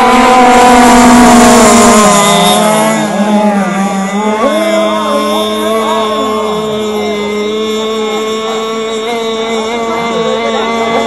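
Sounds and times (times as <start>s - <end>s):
racing boat engines whining: 0.0s - 11.0s.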